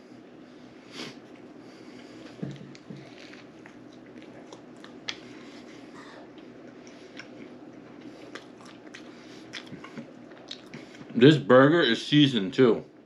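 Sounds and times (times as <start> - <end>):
faint steady hum: 0.0 - 13.0
person chewing food: 1.2 - 11.2.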